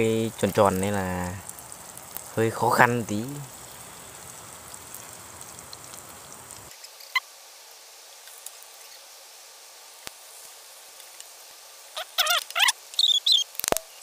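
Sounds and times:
food sizzling in hot oil: 0.0s - 14.0s
short high squeak: 12.0s - 13.5s.

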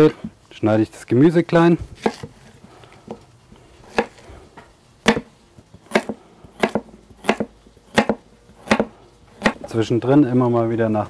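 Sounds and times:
knife chopping on cutting board: 2.0s - 2.3s, 3.9s - 4.2s, 5.0s - 9.6s.

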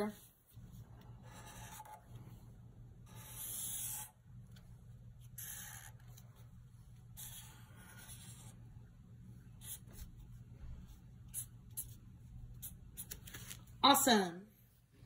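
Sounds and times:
felt-tip marker drawing on paper: 0.1s - 2.0s, 3.0s - 4.2s, 5.2s - 8.7s, 9.5s - 13.1s.

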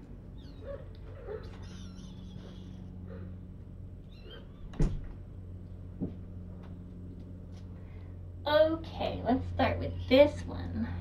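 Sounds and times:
steady low hum: 0.0s - 11.0s
kitten squeaks: 0.4s - 2.9s, 4.0s - 4.8s.

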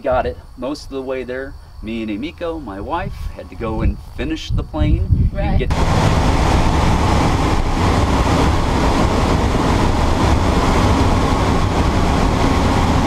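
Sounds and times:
rushing wind: 1.5s - 13.0s
light aircraft engine drone: 5.1s - 13.0s.

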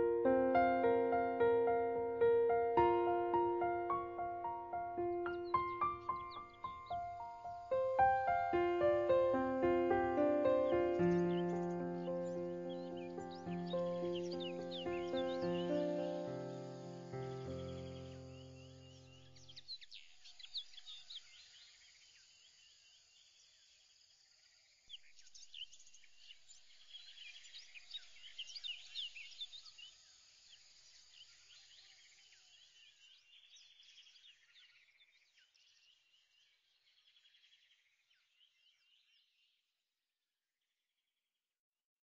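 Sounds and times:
birds chirping and trilling: 0.0s - 22.0s, 24.9s - 39.5s.

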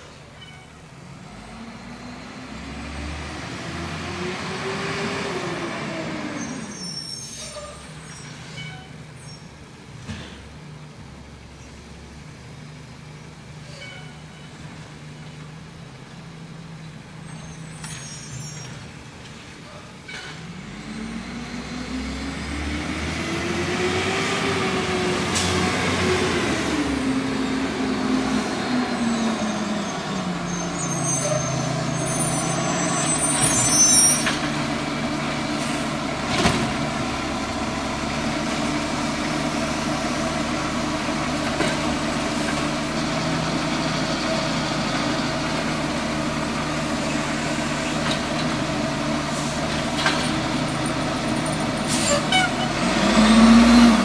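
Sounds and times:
diesel truck engine revving: 1.0s - 7.3s, 20.4s - 54.0s.

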